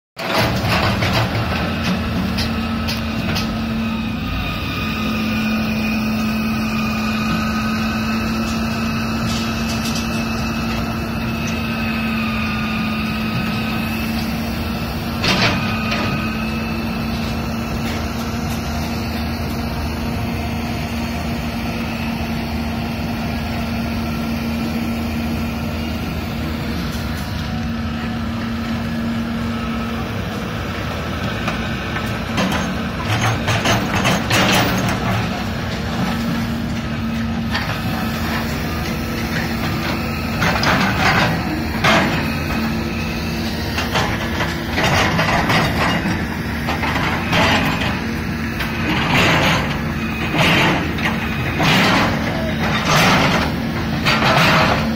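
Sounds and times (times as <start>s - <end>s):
excavator diesel engine: 0.2s - 54.9s.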